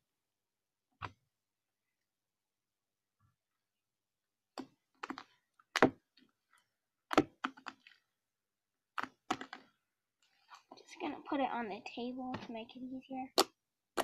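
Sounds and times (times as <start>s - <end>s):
slime clicking and popping: 8.9s - 9.6s.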